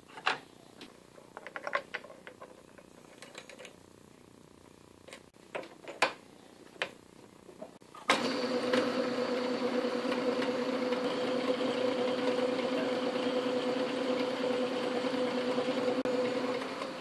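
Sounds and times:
lathe motor humming: 8.1s - 17.0s.

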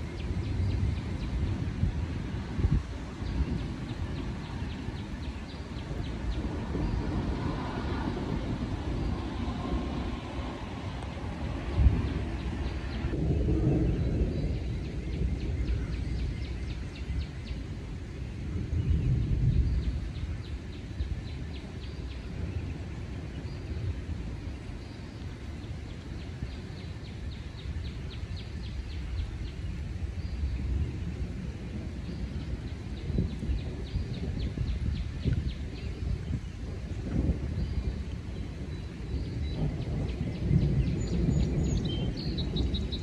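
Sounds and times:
thunder rumbling: 0.0s - 43.0s
bird singing whistled notes: 38.7s - 43.0s.

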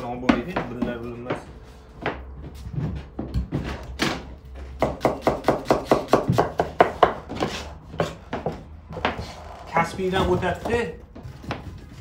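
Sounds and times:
knife chopping on wooden board: 4.8s - 8.5s.

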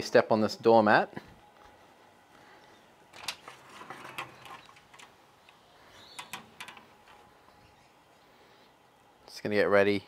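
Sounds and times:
light clicks and knocks: 3.2s - 7.3s.

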